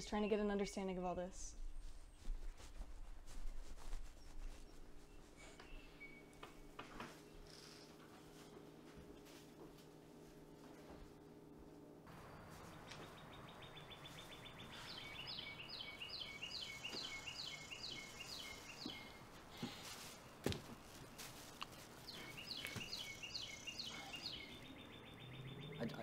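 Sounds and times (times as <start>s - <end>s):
songbird trilling and chirping: 12.2s - 19.2s, 22.0s - 26.0s.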